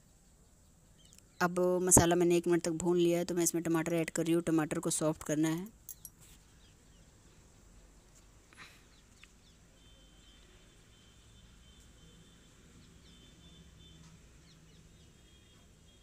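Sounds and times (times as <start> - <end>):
faint background hum: 0.0 - 16.0
faint high-pitched chirps: 5.8 - 16.0.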